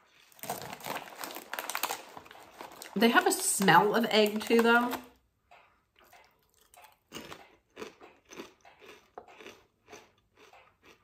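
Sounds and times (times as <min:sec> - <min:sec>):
chewing crisp potato chips: 0:00.0 - 0:03.0, 0:06.0 - 0:11.0.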